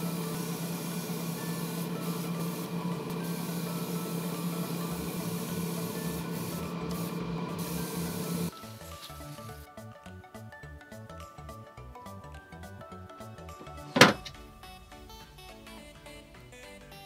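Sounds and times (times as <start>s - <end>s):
exhaust fan humming: 0.0s - 8.6s
hiss of moving air: 0.0s - 9.7s.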